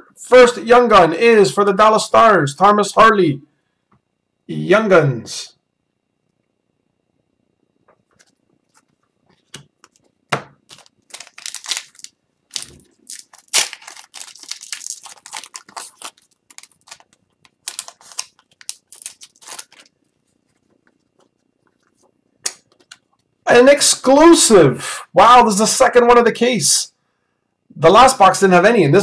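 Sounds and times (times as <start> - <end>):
foil wrapper crinkling and tearing: 10.7 - 21.1.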